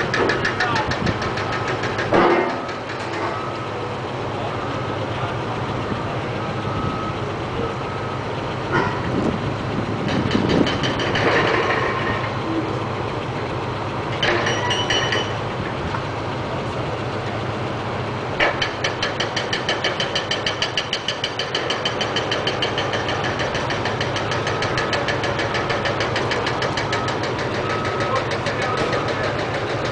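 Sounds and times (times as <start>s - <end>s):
diesel engines idling: 0.0s - 29.9s
short metal clanks: 0.1s - 3.5s.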